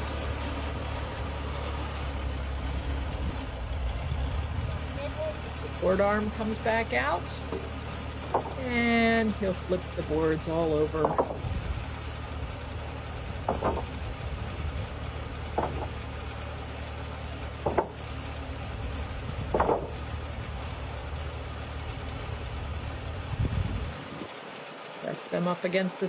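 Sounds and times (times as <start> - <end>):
sawmill engine idling: 0.0 - 23.9
wooden boards knocking: 7.4 - 8.7, 11.0 - 11.5, 13.4 - 14.1, 15.5 - 16.1, 17.6 - 18.1, 19.4 - 20.0.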